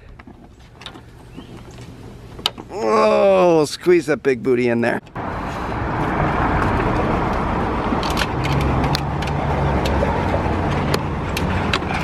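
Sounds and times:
vehicle engine running: 0:05.2 - 0:12.0.

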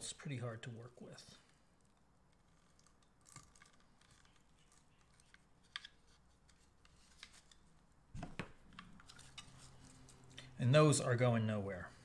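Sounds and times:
small clicks and rustles of wire: 0:00.7 - 0:07.8.

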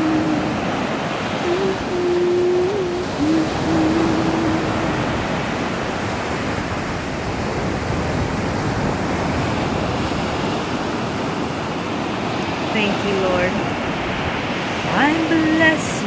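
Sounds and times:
low held tone: 0:00.0 - 0:05.8
ocean surf breaking on beach: 0:00.0 - 0:16.0.

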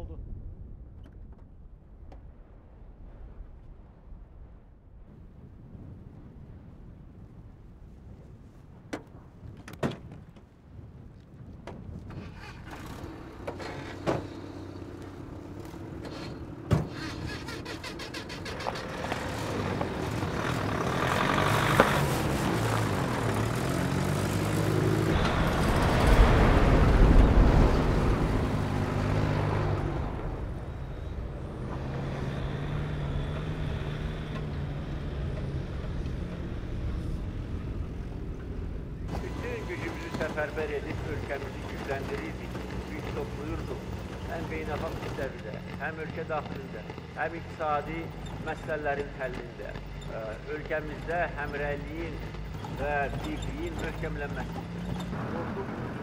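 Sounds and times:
jeep engines revving: 0:12.1 - 0:56.0.

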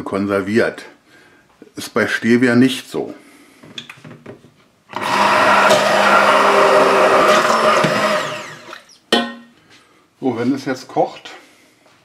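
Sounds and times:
stick blender in steel pot: 0:04.9 - 0:08.9.

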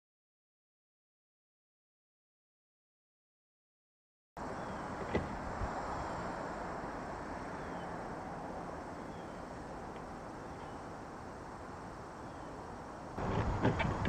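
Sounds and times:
steady outdoor rushing noise: 0:04.4 - 0:14.0.

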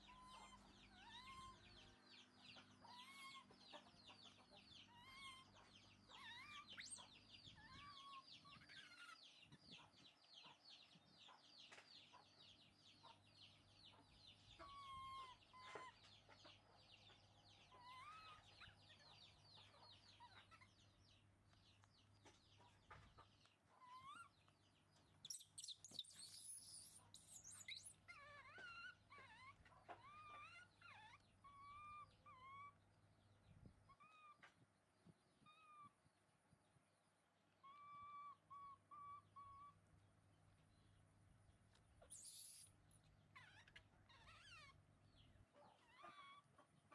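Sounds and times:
baby monkeys cooing and whimpering: 0:00.0 - 0:12.2, 0:13.8 - 0:36.0, 0:37.5 - 0:39.9, 0:41.8 - 0:46.9
fast chirping: 0:25.2 - 0:29.6, 0:42.0 - 0:42.8.

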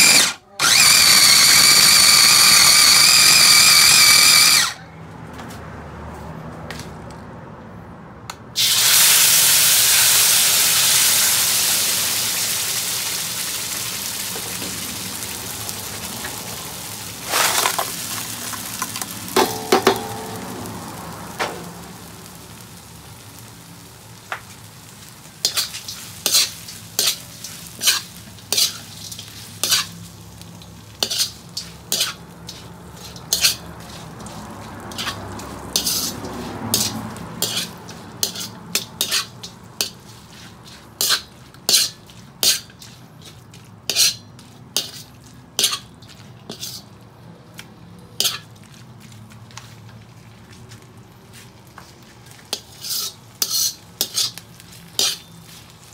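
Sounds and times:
paste sizzling in hot wok: 0:00.0 - 0:04.7, 0:08.6 - 0:47.0, 0:51.6 - 0:55.9
metal spoon scraping wok: 0:17.2 - 0:22.0, 0:25.4 - 0:47.0, 0:48.2 - 0:48.6, 0:52.3 - 0:55.9.

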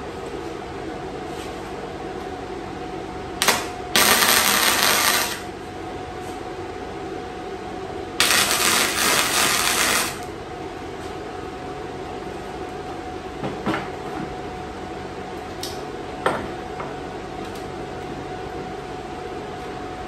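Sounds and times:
steady welder hum: 0:02.7 - 0:12.0
welding arc crackling: 0:03.4 - 0:05.5, 0:08.2 - 0:10.3.

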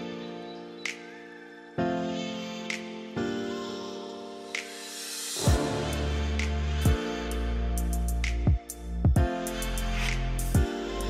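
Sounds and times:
bright percussive hit: 0:05.4 - 0:07.0.

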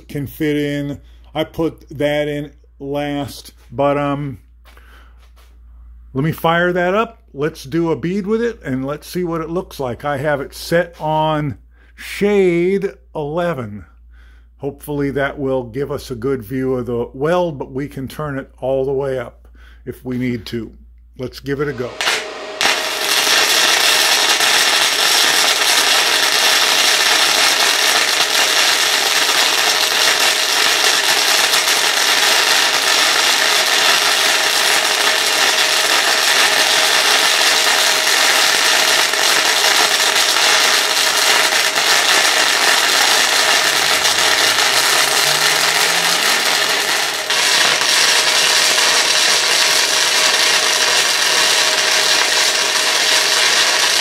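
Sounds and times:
welding arc crackling: 0:21.6 - 0:54.0.

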